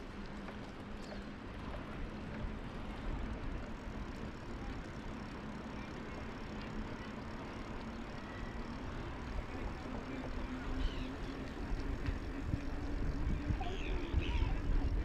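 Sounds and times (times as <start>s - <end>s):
bicycle tyre noise on pavement: 0.0s - 15.0s
steady low hum: 0.0s - 15.0s
wind rumbling on microphone: 9.1s - 15.0s.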